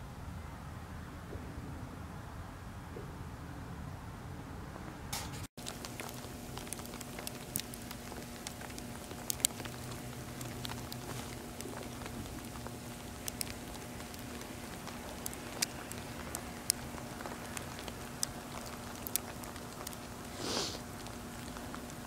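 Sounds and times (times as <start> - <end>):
steady low hum: 0.0 - 22.0
rush of hiss: 20.3 - 20.8.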